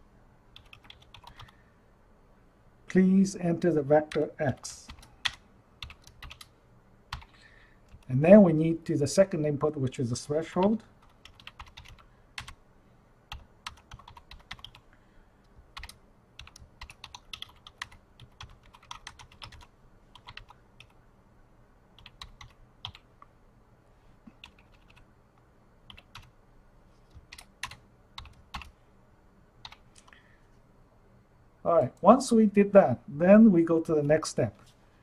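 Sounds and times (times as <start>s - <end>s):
typing on computer keyboard: 0.6s - 1.5s, 4.9s - 6.5s, 11.0s - 12.6s, 13.3s - 14.8s, 15.7s - 21.0s, 22.0s - 23.0s, 24.4s - 25.0s, 25.9s - 26.3s, 27.1s - 28.7s.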